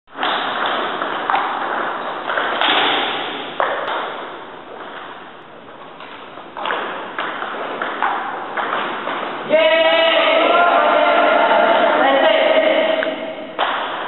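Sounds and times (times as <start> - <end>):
table tennis ball hits: 0.1 - 4.4, 6.6 - 9.4, 13.1 - 14.0.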